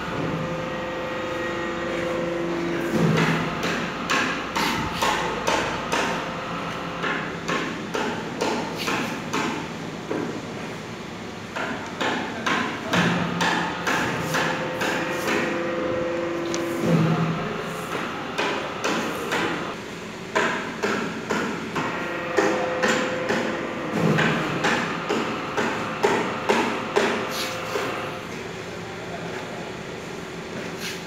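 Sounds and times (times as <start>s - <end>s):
steady low hum: 0.0s - 11.6s, 12.7s - 30.8s
sharp knocks and slaps: 2.9s - 6.2s, 11.6s - 15.5s, 17.9s - 19.6s, 20.3s - 27.3s.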